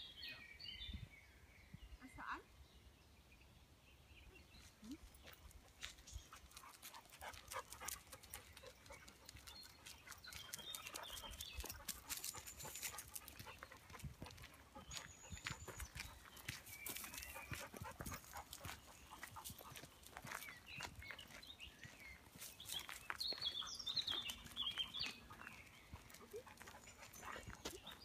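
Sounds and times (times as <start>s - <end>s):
footsteps crunching on gravel: 12.7s - 28.0s.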